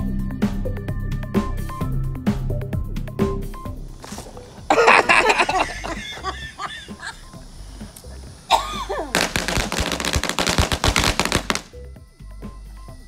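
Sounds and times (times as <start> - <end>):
firecrackers popping: 4.0 - 11.8
people talking and laughing: 4.3 - 10.0.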